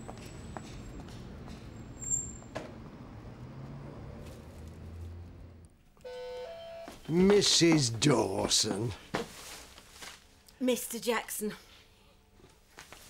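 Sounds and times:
passing traffic hum: 0:00.0 - 0:08.9
short high squeak: 0:01.8 - 0:02.5.

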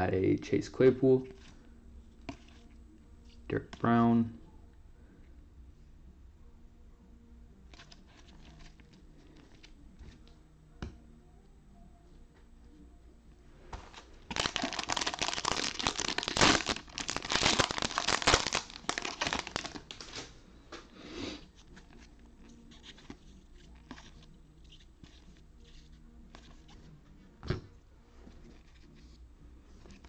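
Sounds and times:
cards rustling: 0:13.8 - 0:20.3, 0:21.5 - 0:26.8
wrapper tearing and crackling: 0:14.3 - 0:20.2.

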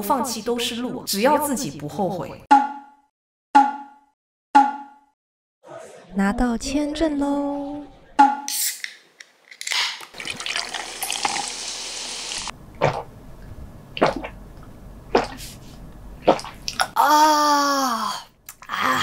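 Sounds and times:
beer can opening: 0:08.5 - 0:10.2
beer pouring fizzing: 0:10.1 - 0:12.5
person gulping: 0:16.3 - 0:17.0
person sighing ahh: 0:17.0 - 0:19.0.

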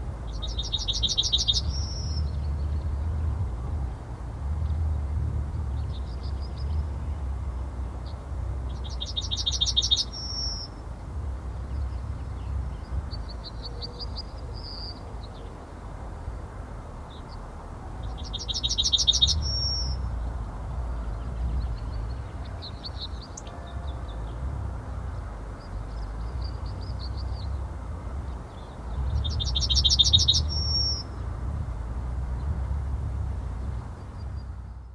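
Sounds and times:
steady low rumble: 0:00.0 - 0:34.9
bird singing: 0:00.3 - 0:03.0, 0:08.0 - 0:10.8, 0:11.6 - 0:15.6, 0:17.1 - 0:27.7, 0:28.3 - 0:31.3.

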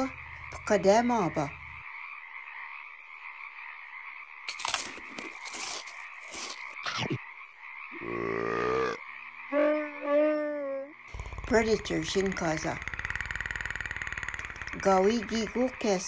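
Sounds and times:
drawn-out frog calls: 0:00.0 - 0:16.0
frog chorus calling: 0:00.0 - 0:16.0
sharp clicks and crackles: 0:11.1 - 0:15.4.

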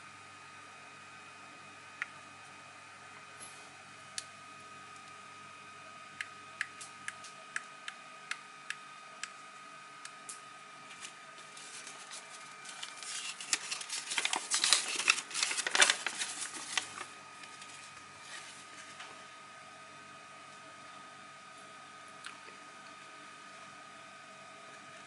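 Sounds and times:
paper and plastic rustling: 0:10.9 - 0:19.2.

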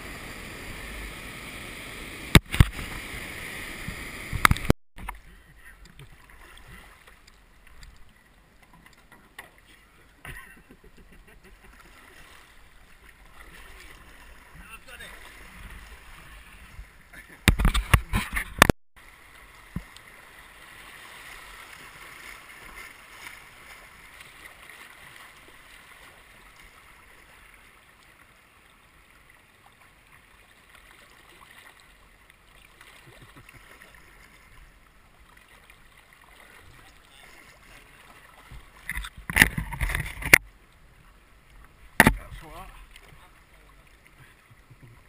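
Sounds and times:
boat knocking and scraping branches: 0:08.6 - 0:18.7, 0:36.5 - 0:40.5, 0:41.8 - 0:43.3
river water rushing: 0:19.0 - 0:40.4.

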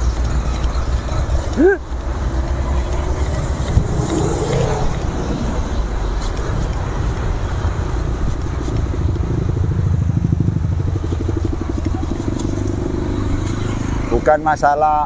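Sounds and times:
road traffic: 0:00.0 - 0:15.0
hand saw cutting branch: 0:10.8 - 0:13.8.

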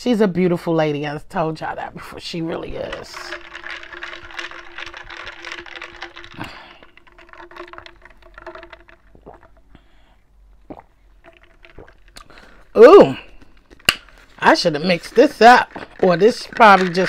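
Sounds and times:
eating mouth noises: 0:03.2 - 0:09.8, 0:10.6 - 0:14.0.

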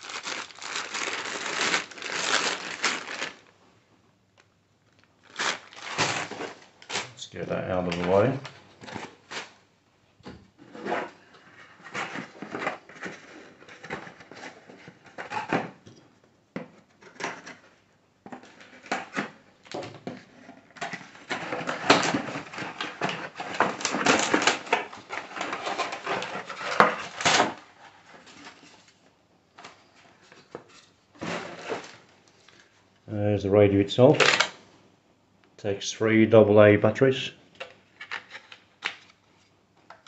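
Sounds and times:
cardboard packaging scuffing: 0:00.0 - 0:03.4, 0:05.3 - 0:07.2.

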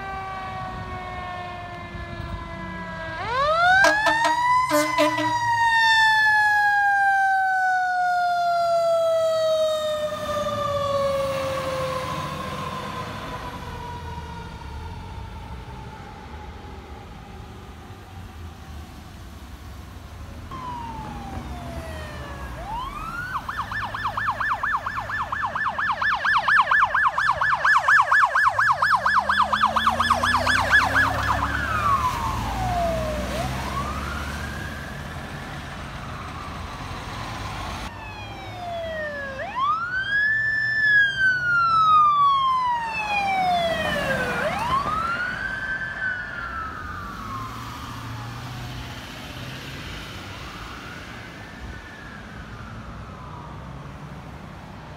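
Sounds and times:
electronic siren wail and yelp: 0:00.0 - 0:14.8, 0:20.5 - 0:35.2, 0:37.9 - 0:48.5
two-tone sweeping siren: 0:00.0 - 0:18.7, 0:20.5 - 0:54.4.

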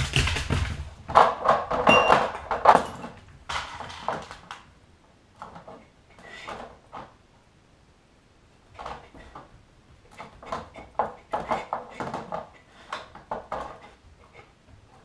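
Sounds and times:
glass jars clinking: 0:01.9 - 0:03.0.

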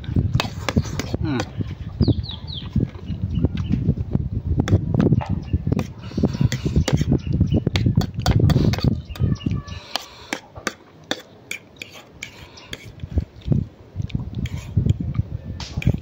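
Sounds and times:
fork scraping ceramic plate: 0:05.8 - 0:07.2, 0:07.8 - 0:13.1, 0:14.4 - 0:15.0.

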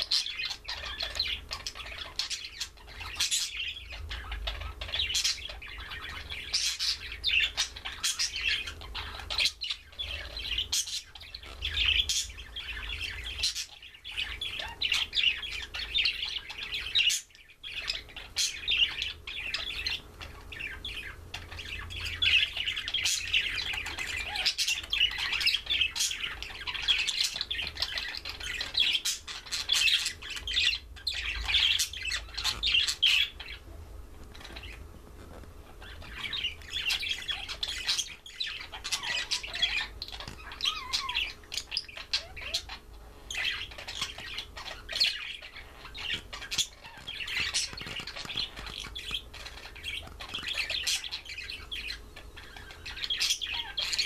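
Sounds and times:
budgerigars chirping and chattering: 0:00.0 - 0:54.0.

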